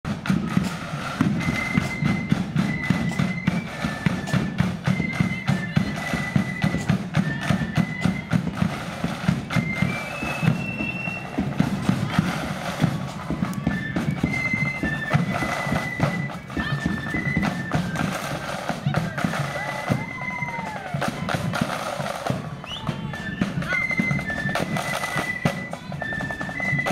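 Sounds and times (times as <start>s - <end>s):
steady drumbeats: 0.0s - 26.9s
flutes playing melody: 0.1s - 26.9s.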